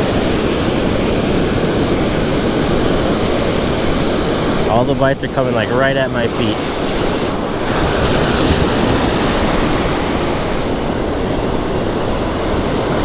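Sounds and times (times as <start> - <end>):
ocean surf breaking: 0.0 - 13.0
wind buffeting microphone: 0.0 - 13.0.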